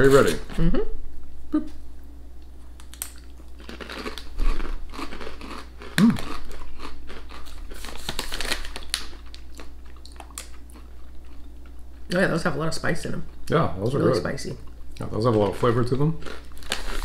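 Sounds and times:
crunching and chewing crisps: 2.8s - 12.1s, 14.7s - 17.0s
crisp bag crinkling: 6.2s - 9.7s, 15.4s - 17.0s.

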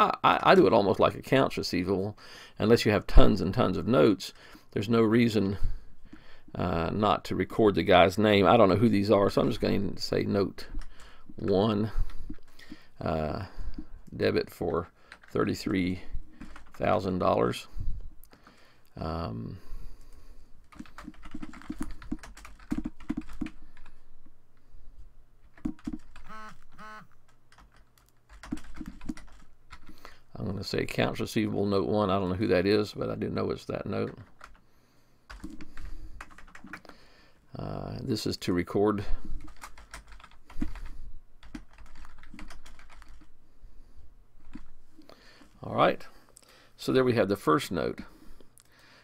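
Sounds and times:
typing on a keyboard: 15.1s - 15.8s, 16.4s - 16.9s, 20.7s - 24.0s, 25.4s - 30.0s, 34.0s - 34.6s, 35.3s - 37.0s, 39.4s - 43.3s.

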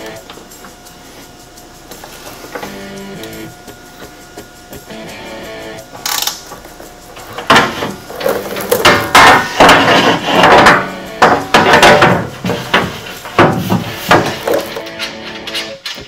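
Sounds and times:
metal plate knocking on frame: 8.8s - 14.6s.

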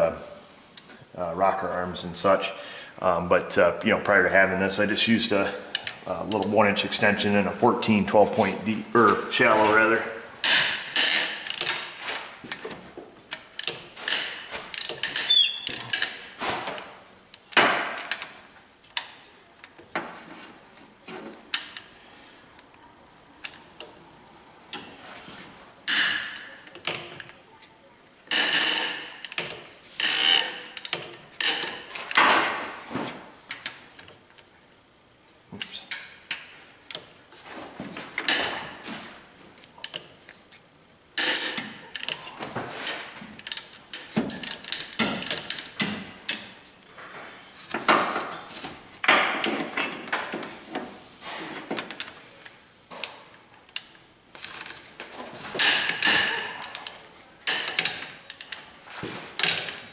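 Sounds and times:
hand ratchet clicking: 10.4s - 11.9s, 28.3s - 32.2s, 55.6s - 58.7s.

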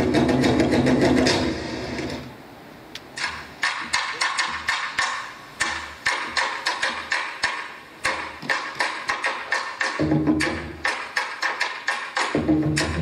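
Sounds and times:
sharp wood-block clicks: 3.0s - 13.0s
percussion music: 3.2s - 13.0s.

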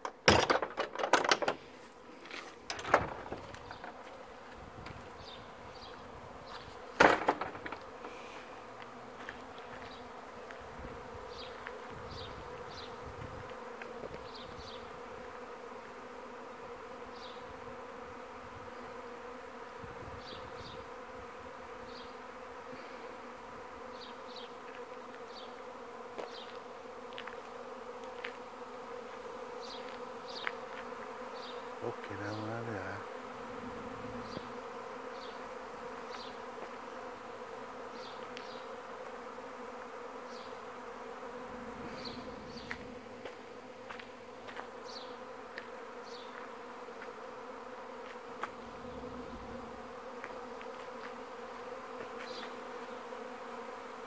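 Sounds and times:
bees buzzing: 0.0s - 54.0s.

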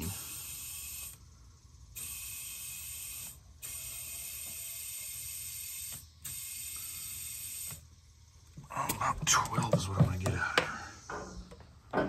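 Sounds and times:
compressed air hissing: 0.0s - 9.1s.

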